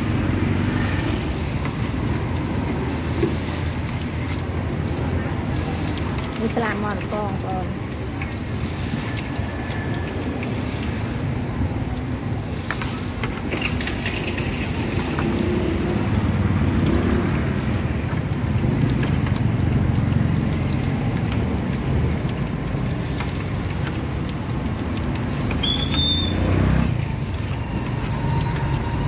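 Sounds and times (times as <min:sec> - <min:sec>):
vehicle passing close: 0:00.0 - 0:07.8, 0:12.6 - 0:23.2
hum of motor traffic: 0:00.0 - 0:29.0
scattered clatter: 0:12.8 - 0:15.2.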